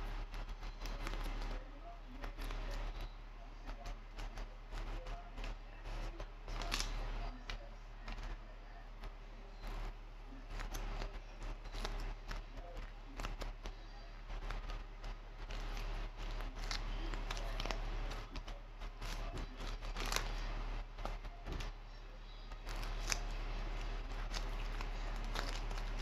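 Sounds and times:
clay crunching in hands: 10.5s - 21.9s, 22.5s - 26.0s.

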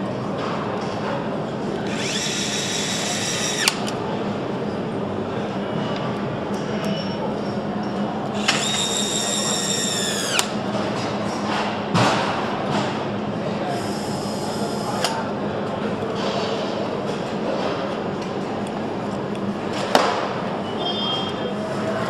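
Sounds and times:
factory steady hum: 0.0s - 22.0s
thinner tool whine: 1.9s - 3.9s, 8.4s - 10.5s
power screwdriver whining: 1.9s - 4.0s, 8.4s - 10.5s.

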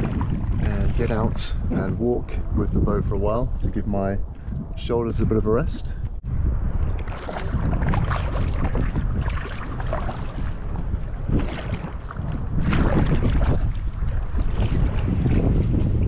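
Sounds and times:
paddle strokes splashing: 0.0s - 1.4s, 6.8s - 16.0s
wind rumble on microphone: 0.0s - 16.0s.

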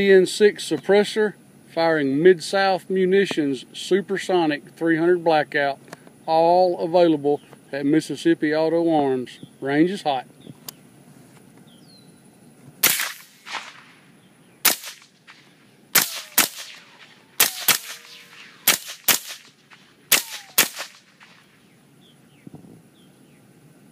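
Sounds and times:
suppressed rifle shots: 12.8s - 14.0s, 14.6s - 21.5s.

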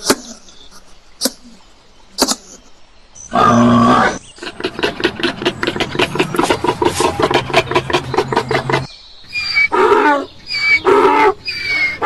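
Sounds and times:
warthogs grunting: 3.3s - 8.9s.

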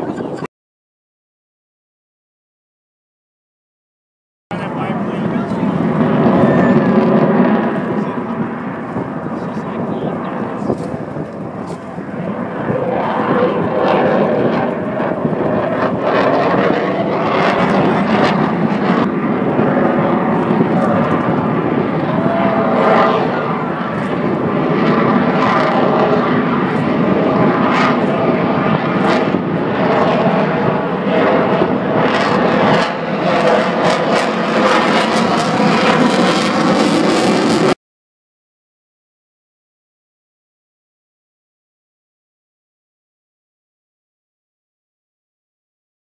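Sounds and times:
aircraft engine noise: 0.0s - 0.5s, 4.5s - 37.8s.

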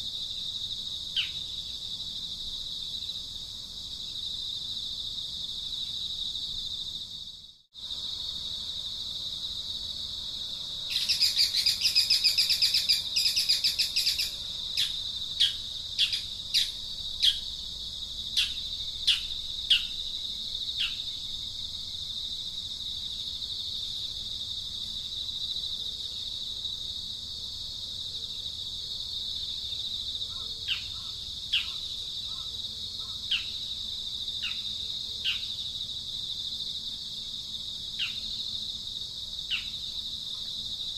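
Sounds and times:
high-pitched insect drone: 7.8s - 25.6s.

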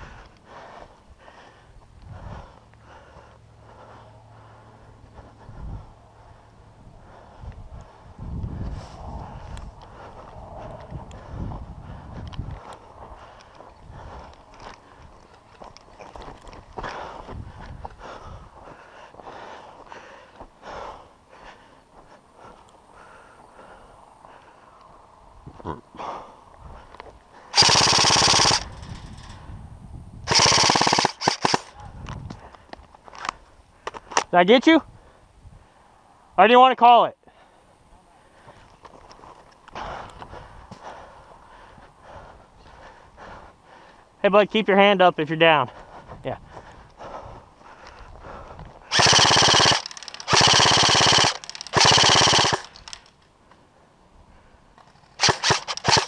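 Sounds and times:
airsoft gun bursts: 27.5s - 28.8s, 30.3s - 31.8s, 48.9s - 53.1s, 55.1s - 56.0s
sharp clicks: 27.6s - 29.3s, 30.3s - 34.3s, 48.9s - 53.3s, 54.8s - 56.0s.

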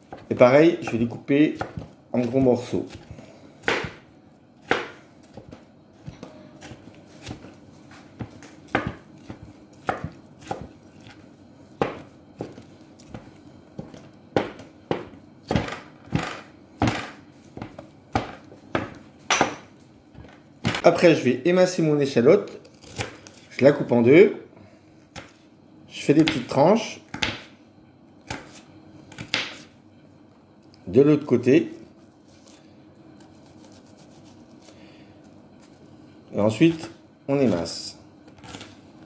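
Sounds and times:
knife chopping on wooden board: 0.1s - 11.2s, 11.8s - 19.7s, 29.2s - 29.7s.

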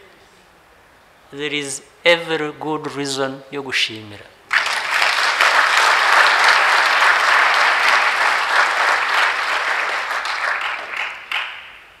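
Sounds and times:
audience applauding: 4.5s - 12.0s.

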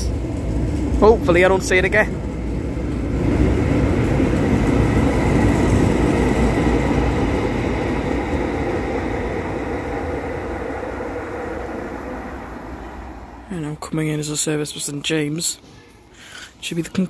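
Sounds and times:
train rail running noise: 0.0s - 17.0s
faint high whine: 7.9s - 16.0s.

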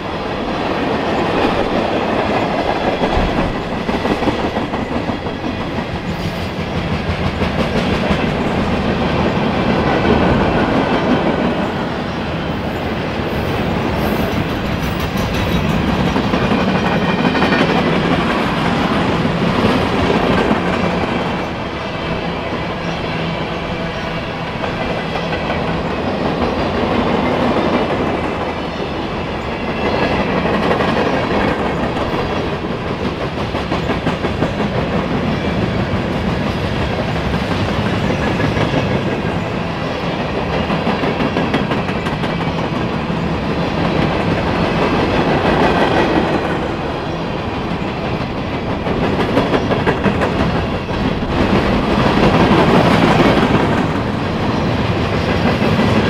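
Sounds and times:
train wheels rolling on track: 0.0s - 56.0s.

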